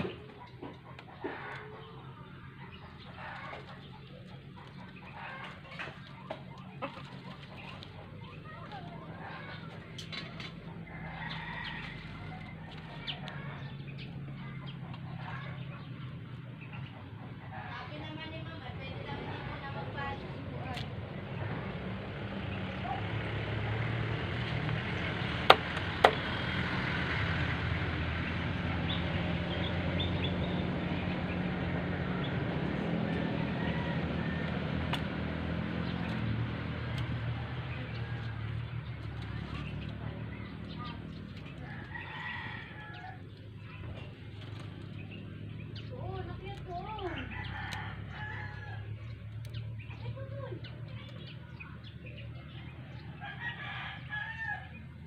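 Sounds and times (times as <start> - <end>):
chickens calling: 0.0 - 55.0
small birds chirping: 0.0 - 55.0
rooster crowing: 33.0 - 34.9, 41.6 - 43.2, 47.1 - 49.0, 53.1 - 54.9.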